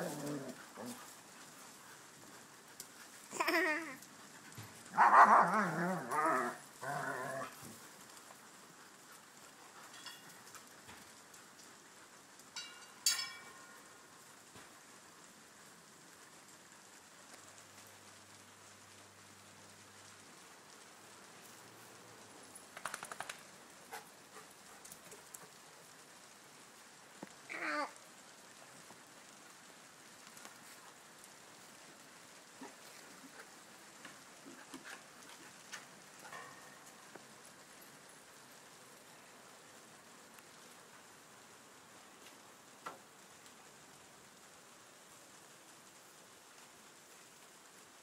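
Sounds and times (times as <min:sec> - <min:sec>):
dog barking: 0:05.0 - 0:05.5.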